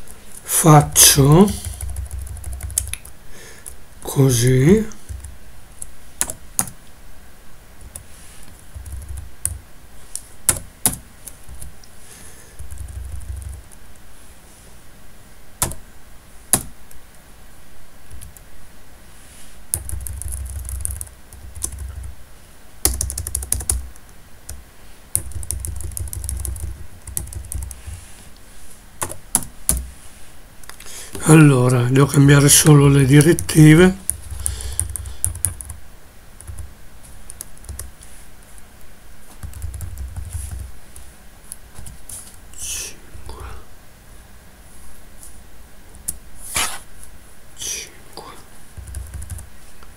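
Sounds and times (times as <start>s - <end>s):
keyboard typing: 1.5s - 3.8s, 5.0s - 6.8s, 7.8s - 9.6s, 12.6s - 13.8s, 15.6s - 15.8s, 19.7s - 22.2s, 22.8s - 28.0s, 33.2s - 35.8s, 37.3s - 37.9s, 39.4s - 40.7s, 48.8s - 49.5s.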